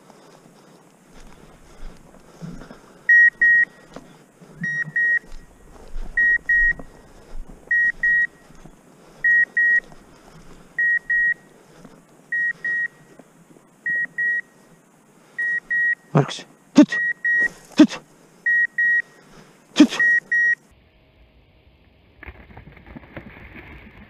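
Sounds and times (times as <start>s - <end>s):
footsteps through tall weeds: 0.0s - 3.0s, 3.7s - 12.2s
electronic double beeps: 4.6s - 5.3s, 6.2s - 6.8s, 19.8s - 20.6s.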